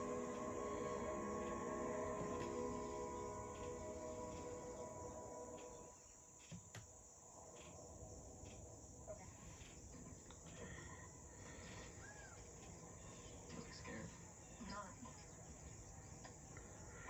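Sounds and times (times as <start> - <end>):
film music: 0.0 - 6.4.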